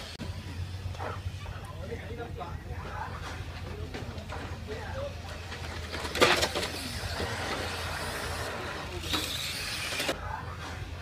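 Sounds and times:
rc car motors hissing: 5.8 - 10.2.

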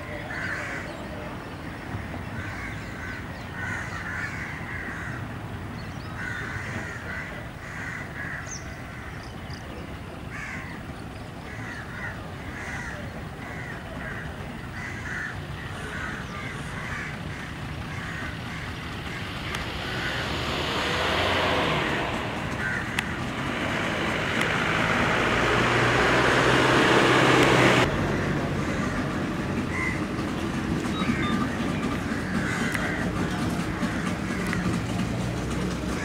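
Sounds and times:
birds calling: 0.0 - 36.0
low steady rumble: 0.0 - 36.0
motorboat engine: 0.0 - 36.0
water noise: 17.2 - 35.7.

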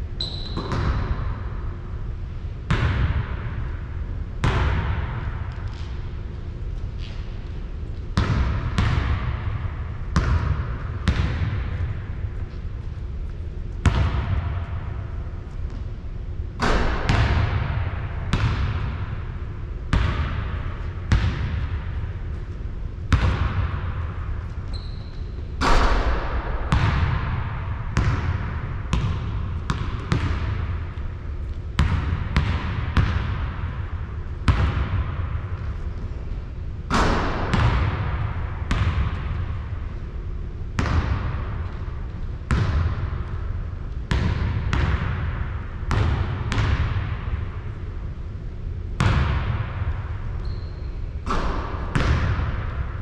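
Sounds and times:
basketball bouncing on hard court: 0.2 - 1.4, 2.7 - 3.6, 4.4 - 6.0, 8.1 - 12.6, 13.8 - 15.0, 16.6 - 19.3, 19.9 - 22.5, 23.1 - 35.7, 36.9 - 39.7, 40.8 - 47.5, 49.0 - 53.0
steady low rumble: 0.8 - 50.4, 51.0 - 53.0.

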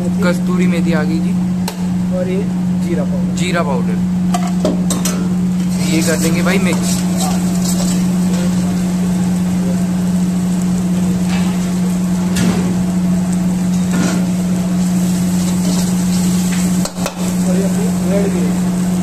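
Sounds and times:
steady low hum: 0.0 - 19.0
spices sizzling in oil: 4.2 - 19.0
metal ladle scraping a pan: 5.6 - 8.2.

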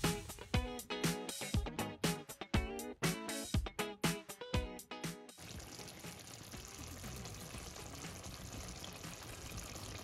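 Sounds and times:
curry bubbling in a pan: 5.4 - 10.0.

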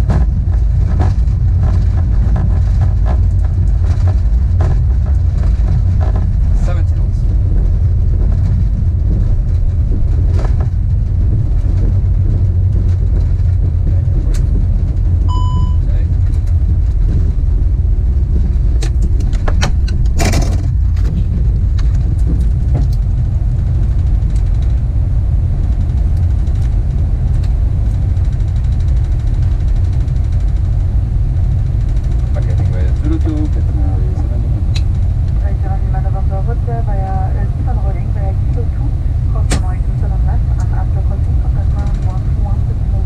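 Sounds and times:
aircraft rolling low rumble: 0.0 - 43.0
short electronic beep: 15.3 - 15.9.

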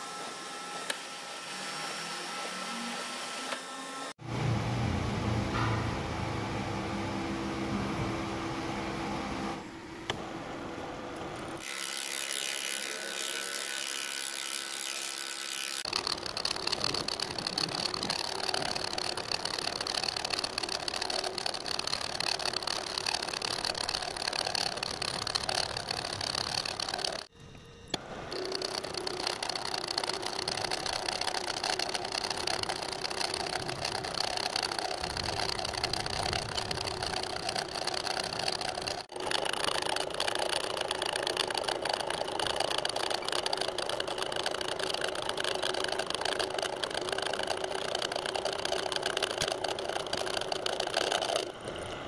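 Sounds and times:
milling machine cutting steel: 11.2 - 52.0.

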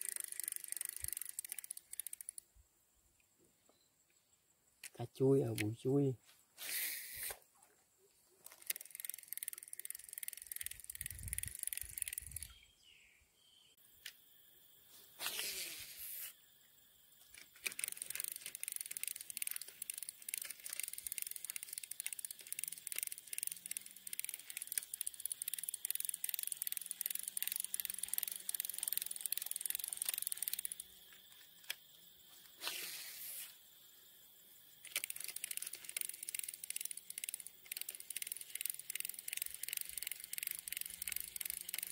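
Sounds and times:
fishing reel clicking: 0.0 - 2.4, 5.2 - 6.0, 8.4 - 12.5, 17.3 - 31.8, 34.7 - 41.9
fishing line whizzing off spool: 6.6 - 7.5, 8.5 - 12.6, 14.9 - 16.4, 17.3 - 31.0, 34.8 - 41.9.

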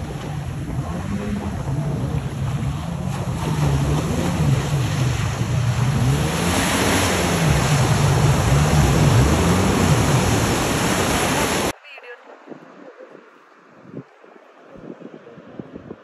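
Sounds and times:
jet ski engine: 0.0 - 11.7
breaking surf and spray: 0.0 - 16.0.

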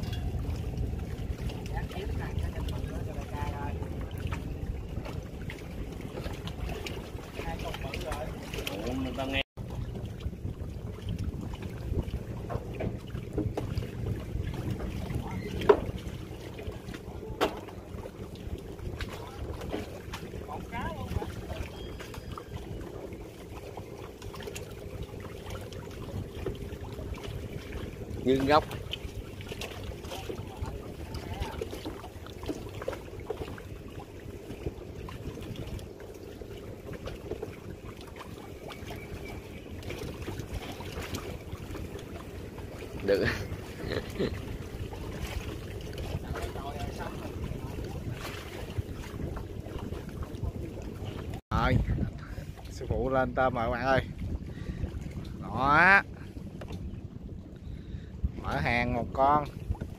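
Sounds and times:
wind and river water rumble: 0.0 - 59.9
light knocks on boat: 17.4 - 17.8.

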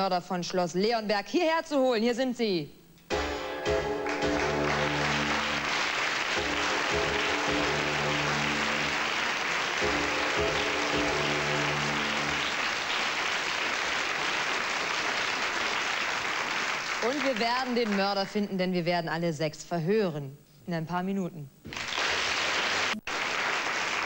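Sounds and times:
music of low held chords: 3.1 - 5.7, 6.4 - 9.1, 9.8 - 12.5
studio audience applauding: 3.7 - 18.3, 21.7 - 24.0.

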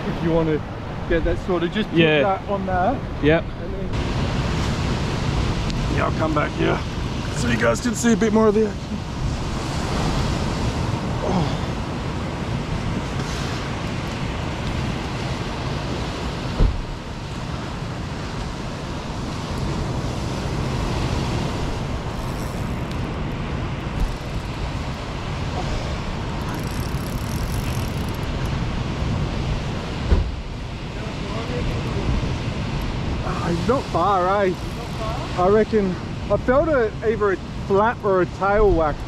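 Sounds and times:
surf breaking on beach: 4.0 - 36.3
wind noise on microphone: 8.9 - 36.3
sharp thump: 16.6 - 16.8, 30.1 - 30.4.

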